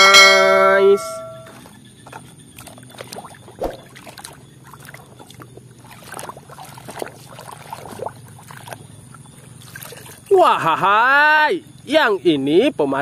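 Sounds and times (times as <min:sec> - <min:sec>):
hand sloshing in water: 0:01.2 - 0:10.4
water splash: 0:01.2 - 0:10.4.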